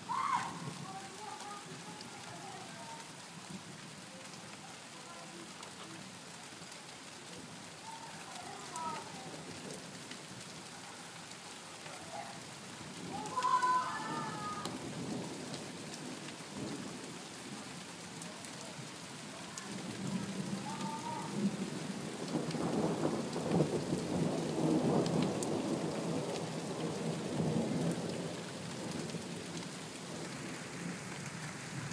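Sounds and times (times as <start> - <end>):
steady rain falling: 0.0 - 31.9
rolling thunder rumble: 19.7 - 30.2.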